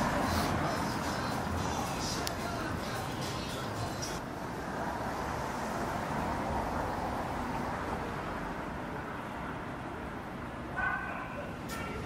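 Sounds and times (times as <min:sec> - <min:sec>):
steady rumble and hiss: 0:00.0 - 0:05.7.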